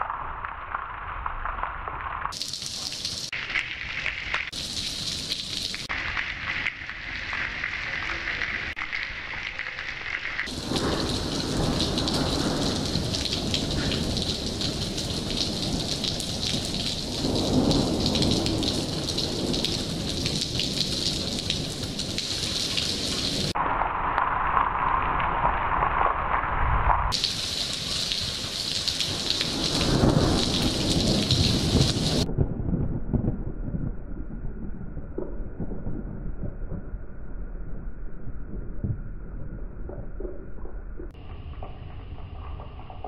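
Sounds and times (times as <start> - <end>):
rain falling: 0.0 - 32.4
thunder rumbling: 10.3 - 43.0.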